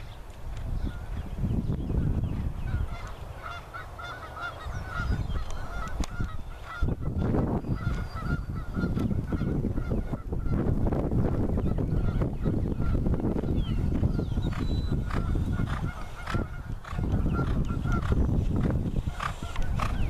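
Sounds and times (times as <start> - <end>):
bird honking calls: 2.7 - 10.2
horse hoofbeats on dirt: 13.9 - 20.0.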